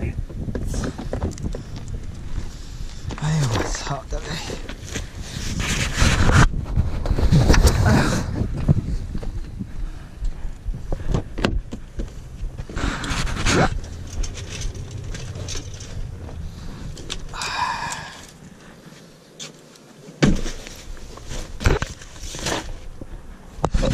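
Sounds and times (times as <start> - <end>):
wind buffeting microphone: 0.0 - 18.8.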